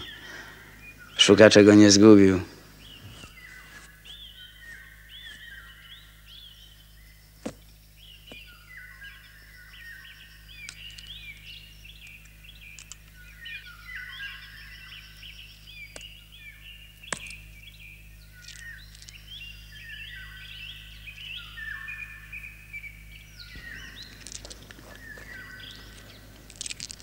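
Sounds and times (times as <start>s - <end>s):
small birds chirping: 0.0s - 27.0s
sharp clicks: 10.6s - 13.2s.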